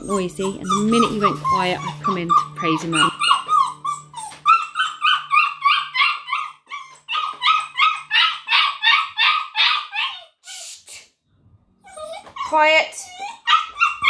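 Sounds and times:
puppy yapping and yelping: 0.0 - 10.4, 11.8 - 14.0.

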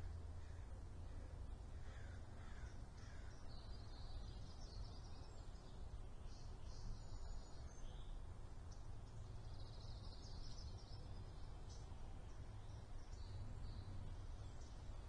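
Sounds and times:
wild birds calling: 0.4 - 4.0.

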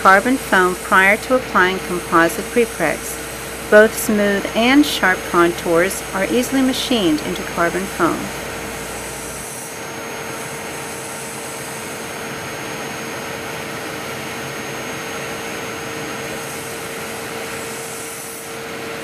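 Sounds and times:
milling machine spindle whine: 0.0 - 18.9
cutter hissing through foam: 8.4 - 11.8.

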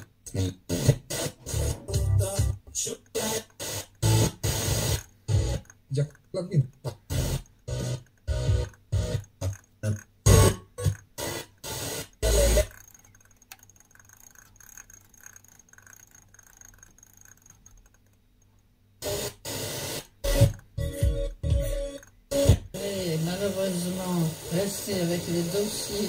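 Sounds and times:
faint radio hiss: 0.0 - 8.0, 22.4 - 26.0
radio station audio: 0.0 - 12.8, 19.0 - 26.0
choppy broken-up radio audio: 0.3 - 12.9, 22.3 - 26.0.

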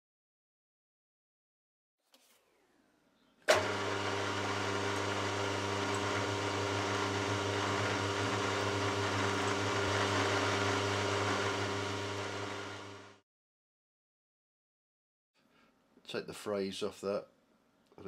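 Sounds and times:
drill boring into metal: 3.5 - 13.2
milling machine humming: 3.5 - 13.2.

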